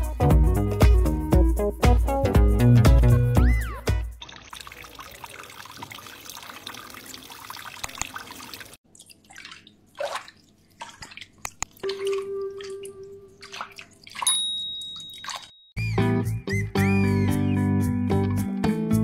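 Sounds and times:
water splashes and drips: 4.1s - 15.7s
water running in a sink: 4.2s - 15.6s
short high ding: 14.3s - 15.7s.

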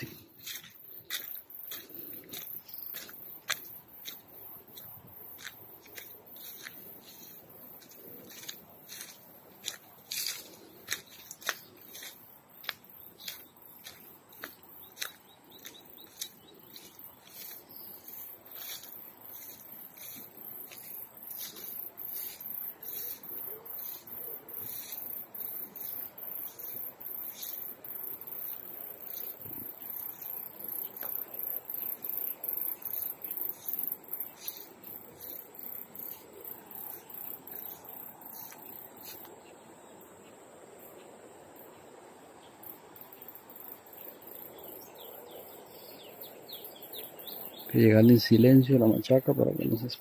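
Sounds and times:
footsteps crunching through grass: 0.0s - 27.8s, 29.1s - 39.4s
insects chirring: 0.0s - 50.0s.

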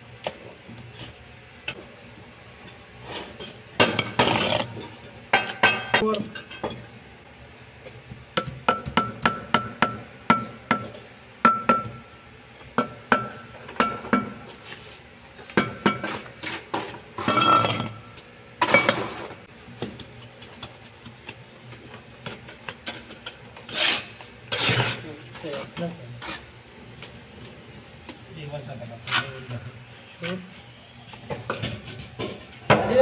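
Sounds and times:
trowel scraping wet mortar: 23.7s - 26.5s.

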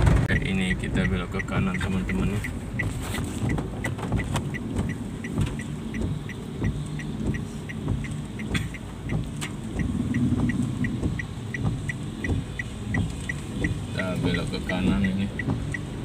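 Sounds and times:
car engine rumble: 0.0s - 16.0s
road noise in heavy rain: 0.0s - 16.0s
turn signal ticking: 0.0s - 16.0s.

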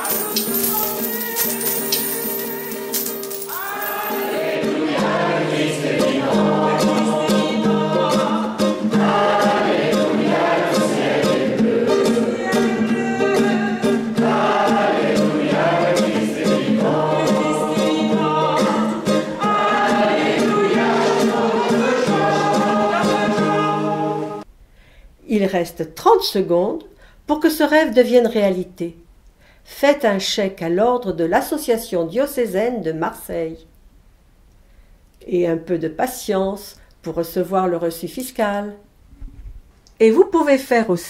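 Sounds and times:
guitar: 0.0s - 24.5s
congregation singing a hymn: 3.5s - 24.4s.

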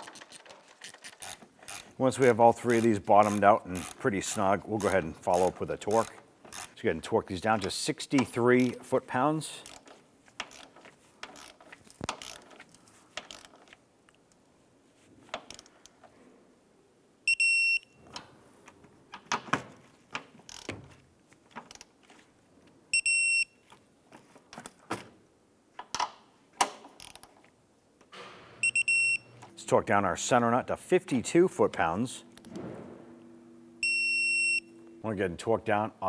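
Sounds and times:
torque wrench ratcheting and clicking: 0.0s - 6.8s, 9.6s - 13.7s, 20.5s - 20.7s, 27.0s - 27.3s
short electronic beep: 33.8s - 35.1s.

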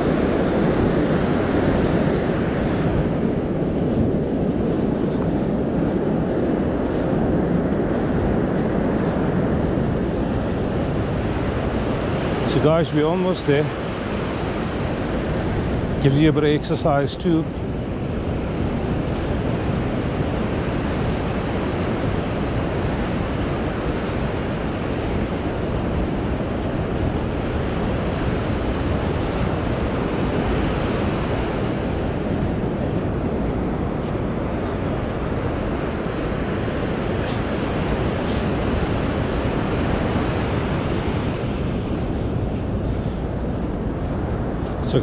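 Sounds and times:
ocean surf washing on sand: 0.0s - 45.0s
wind buffeting microphone: 0.0s - 45.0s.

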